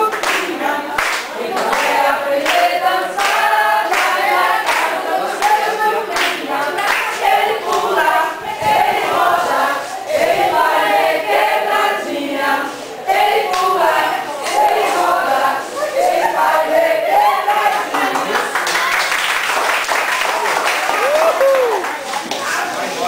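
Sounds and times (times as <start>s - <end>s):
hand claps: 0.0s - 7.9s, 17.7s - 22.5s
group singing in unison: 0.0s - 18.6s.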